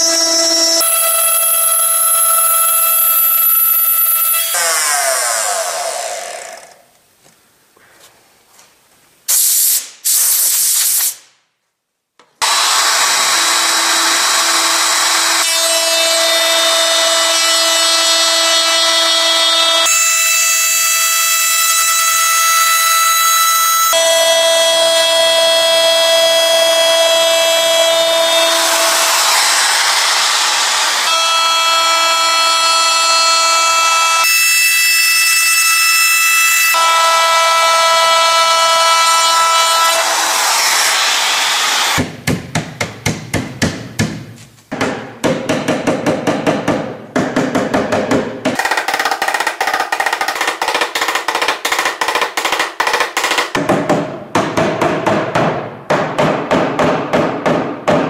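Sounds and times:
router whining and cutting wood: 0.0s - 6.9s, 12.4s - 42.1s.

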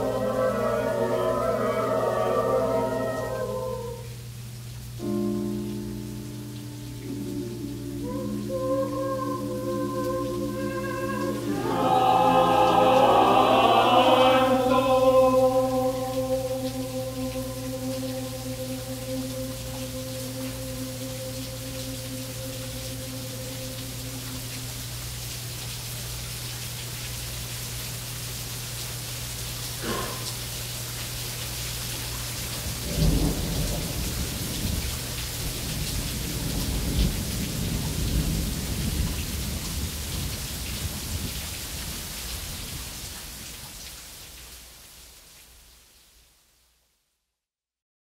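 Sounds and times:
low hum: 0.0s - 4.4s, 6.6s - 25.2s
steady rain: 0.0s - 47.1s
thunder rolling: 32.7s - 41.3s.

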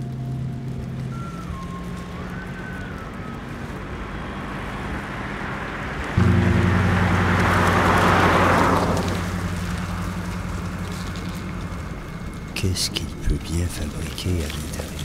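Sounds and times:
car passing by: 1.1s - 12.5s
low steady drone: 6.2s - 15.0s.

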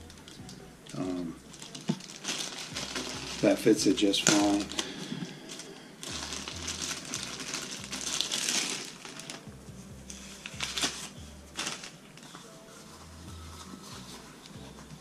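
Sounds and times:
plastic bag crinkling: 0.9s - 9.5s, 10.1s - 12.6s.

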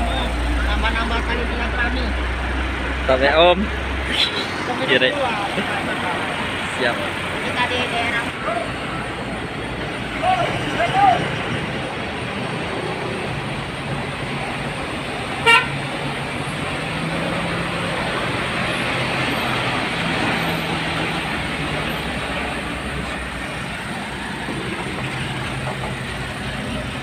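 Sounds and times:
truck diesel engine passing: 0.0s - 27.0s
truck horn toot: 15.4s - 15.8s.

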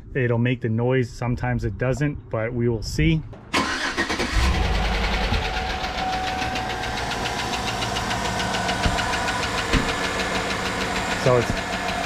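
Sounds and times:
engine idling: 3.6s - 12.0s
fast engine knock ticking: 4.5s - 12.0s.

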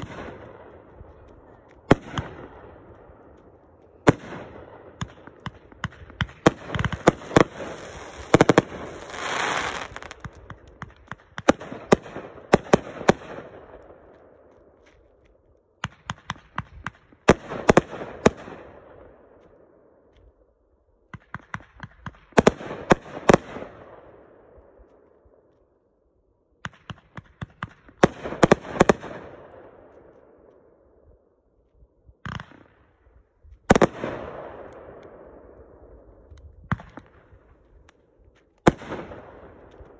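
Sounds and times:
firework burst bangs: 5.8s - 10.5s
firework crackling hiss: 7.0s - 10.3s.

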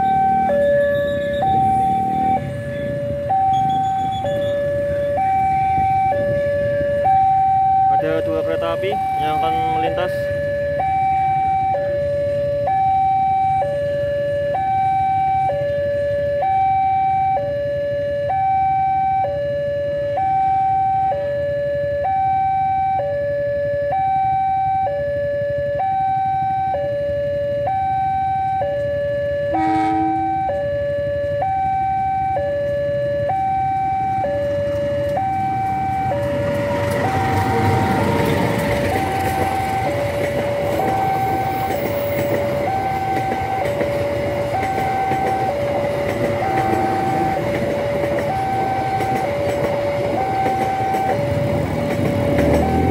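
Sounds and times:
approaching passenger train: 0.0s - 52.9s
two-tone level crossing alarm: 0.0s - 52.9s.

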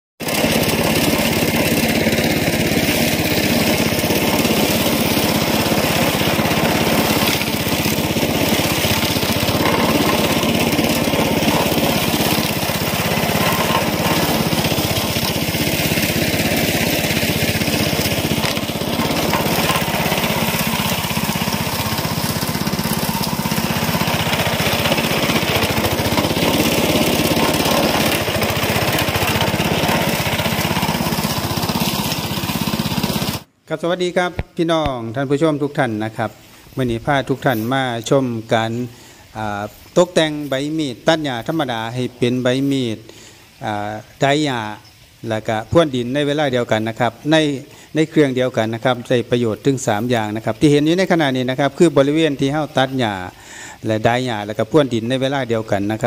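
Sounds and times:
blade scraping soil: 0.2s - 33.5s
brush cutter engine running: 0.2s - 33.5s, 46.3s - 56.0s.

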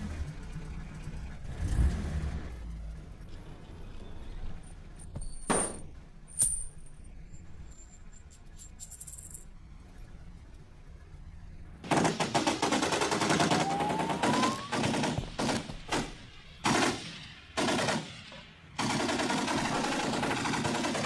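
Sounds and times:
submachine gun firing bursts: 11.8s - 21.0s.

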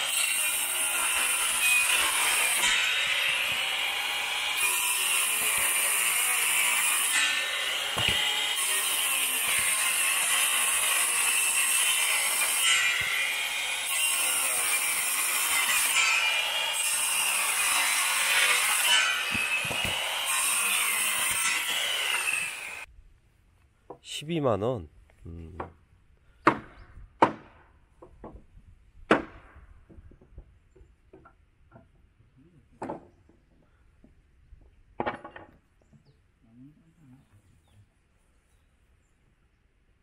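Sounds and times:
woodworking machine cutting wood: 0.0s - 22.9s.

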